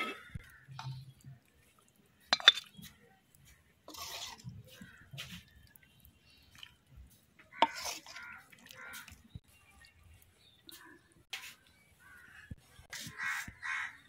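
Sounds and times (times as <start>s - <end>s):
dishes and utensils clinking: 2.3s - 2.9s.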